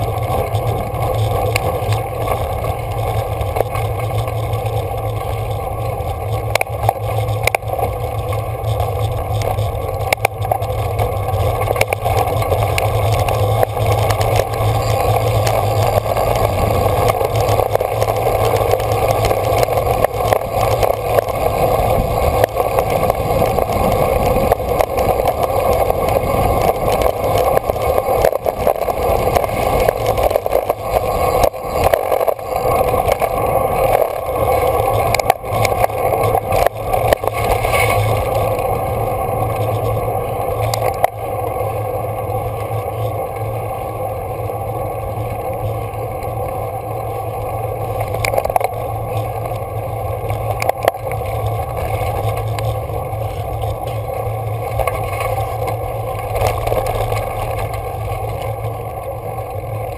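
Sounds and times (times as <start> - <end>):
small rattling clicks: 0.0 - 38.7, 47.7 - 59.9
bike tyres on gravel road: 0.0 - 59.9
wind on microphone: 12.2 - 41.5.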